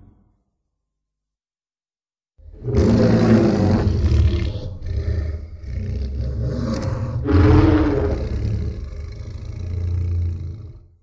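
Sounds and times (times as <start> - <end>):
deep monster roar: 2.5 - 11.0.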